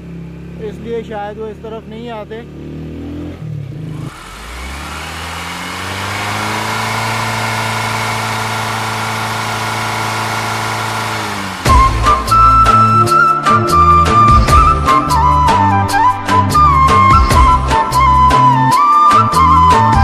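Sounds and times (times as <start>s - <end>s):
motorcycle engine revving: 0.0s - 13.2s.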